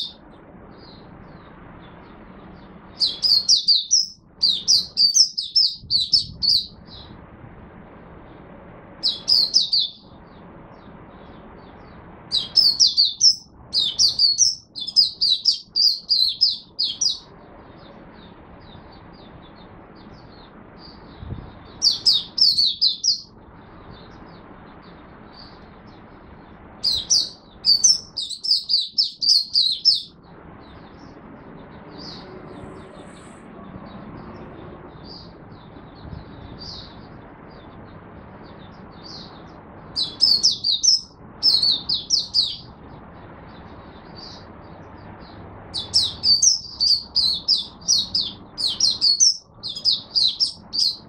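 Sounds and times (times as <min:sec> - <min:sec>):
bird twittering: 0:00.0 - 0:07.2, 0:09.0 - 0:26.1, 0:26.8 - 0:31.2, 0:38.4 - 0:42.8, 0:45.8 - 0:51.0
low background noise: 0:00.0 - 0:51.0.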